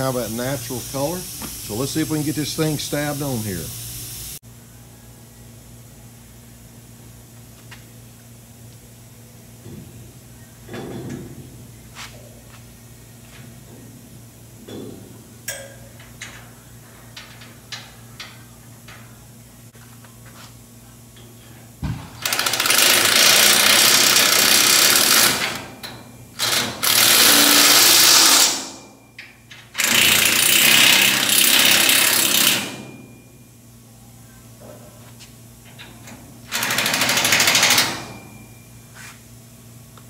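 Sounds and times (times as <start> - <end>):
metal parts clicking and clanking: 14.6 - 19.2
impact wrench hammering: 21.8 - 28.8, 29.8 - 33.1, 36.5 - 38.4.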